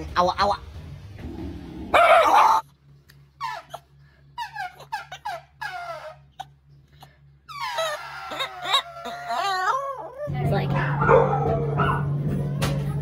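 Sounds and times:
dog whining: 1.9s - 2.7s, 3.4s - 10.8s.

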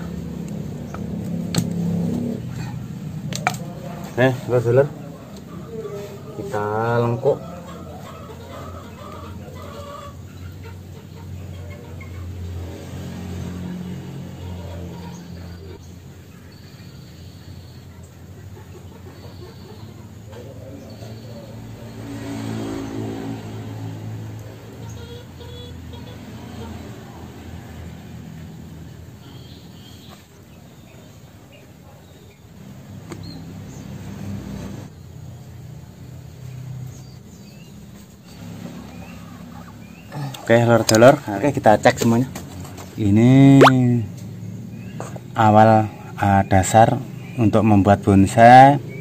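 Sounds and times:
engine humming: 0.0s - 29.9s
bird chirps: 15.0s - 21.6s.

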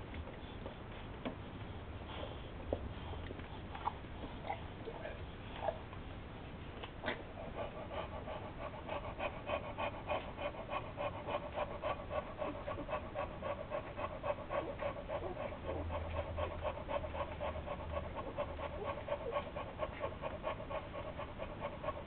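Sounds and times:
dog panting fast: 7.2s - 22.0s.

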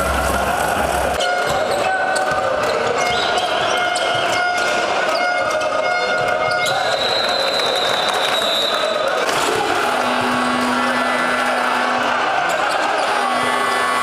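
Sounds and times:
arena background noise: 0.0s - 14.0s
shoe squeaks: 1.2s - 8.8s.

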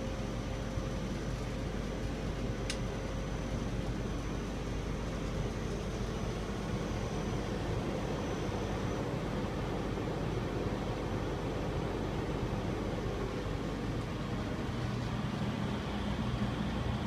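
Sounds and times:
crane hum and rumble: 0.0s - 17.0s
faint high whine: 0.0s - 17.0s.

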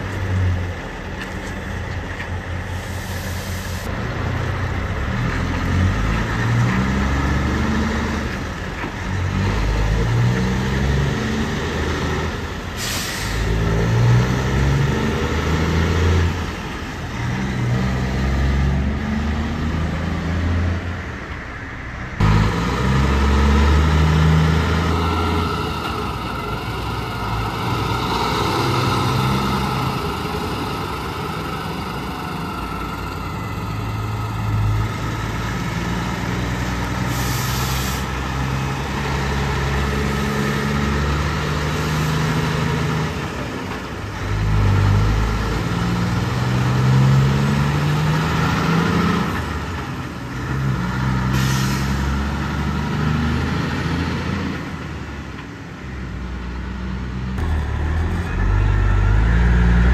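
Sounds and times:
diesel truck engines: 0.0s - 59.9s
air brake hisses: 2.7s - 3.9s, 12.8s - 13.5s, 37.0s - 38.2s, 51.3s - 52.1s.

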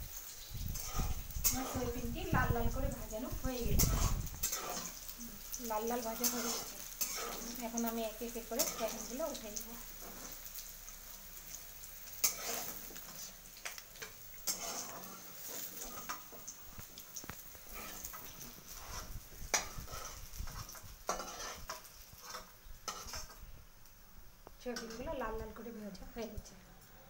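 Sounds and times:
oil sizzling in a pan: 0.0s - 27.0s
metal spatula scraping a pan: 0.2s - 10.6s, 12.0s - 13.4s, 14.0s - 16.5s, 17.5s - 23.5s, 24.6s - 25.6s.

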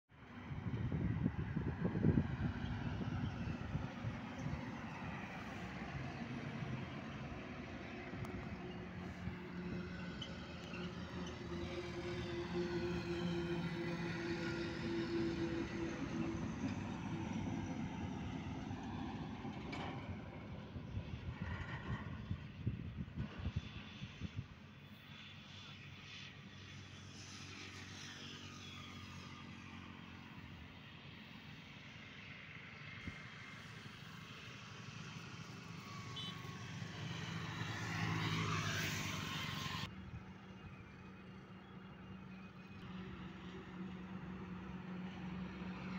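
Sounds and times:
lorry engine hum: 0.2s - 45.9s
tyre and road noise: 0.3s - 31.2s, 32.1s - 45.9s
motorcycle passing by: 0.4s - 20.3s, 33.0s - 40.1s.

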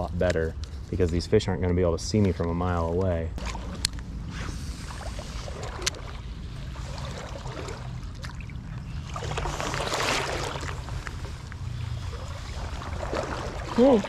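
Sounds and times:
creek water running: 3.4s - 14.0s
rush of water: 4.9s - 14.0s.

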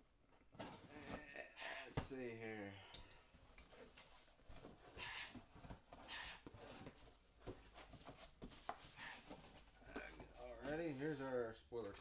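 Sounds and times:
cardboard scraping and rustling: 4.1s - 11.2s.

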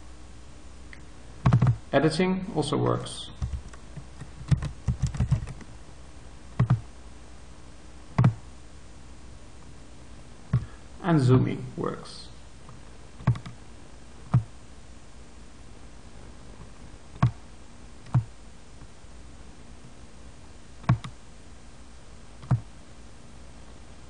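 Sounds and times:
computer mouse clicking: 1.4s - 1.8s, 3.4s - 5.7s, 6.6s - 6.8s, 8.2s - 8.4s, 13.2s - 13.6s, 17.2s - 17.4s, 18.0s - 18.3s, 20.8s - 21.2s, 22.4s - 22.7s.

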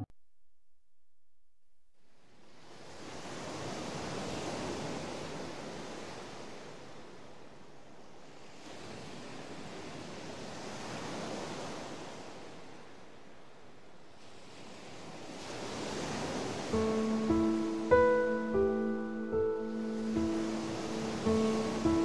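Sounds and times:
ocean waves washing in: 2.2s - 22.0s.

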